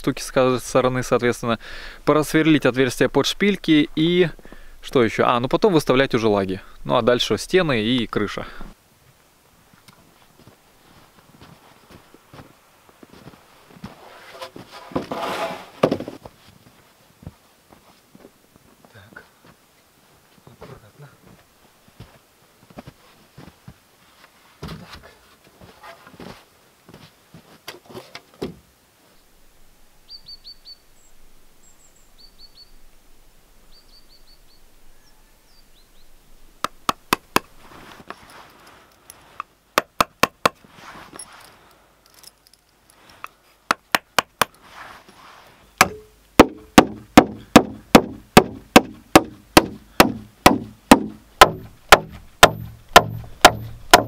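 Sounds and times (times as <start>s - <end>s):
bird chirping: 30.0s - 32.8s, 33.6s - 36.5s
hammer driving nails: 39.8s - 40.6s, 45.8s - 54.0s
boards knocking: 45.8s - 54.0s.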